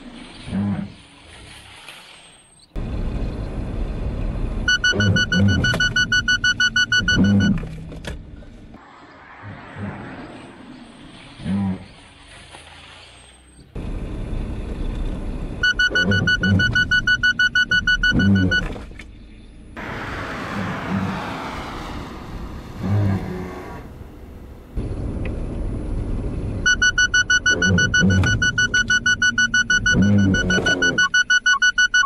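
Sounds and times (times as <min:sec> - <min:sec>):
car engine and tyre noise: 0:00.0 - 0:32.0
rapid high-pitched warning beeps: 0:04.7 - 0:07.6, 0:15.6 - 0:18.7, 0:26.7 - 0:32.0.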